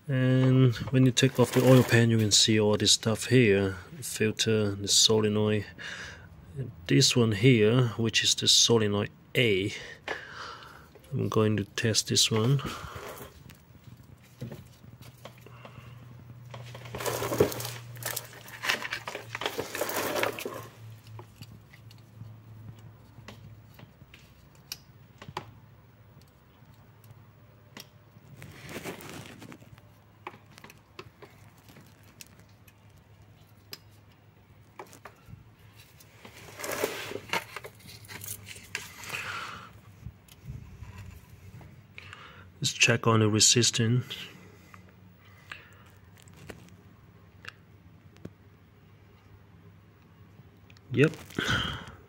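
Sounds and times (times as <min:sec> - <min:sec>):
rustling handling noise: 0:00.3 - 0:02.9, 0:10.9 - 0:25.4, 0:28.2 - 0:41.9, 0:44.6 - 0:47.0, 0:50.9 - 0:51.8.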